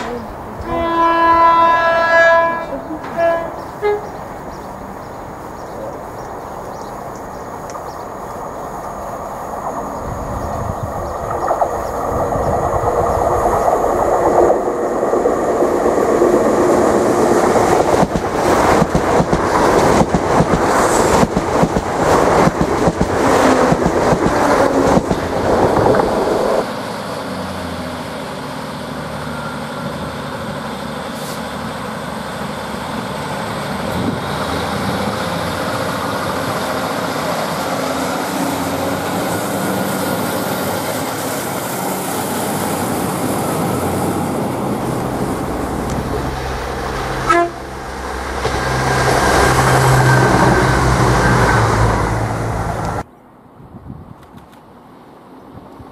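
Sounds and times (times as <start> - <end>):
train diesel engines droning: 0.0 - 53.1
train passing at speed: 0.0 - 55.9.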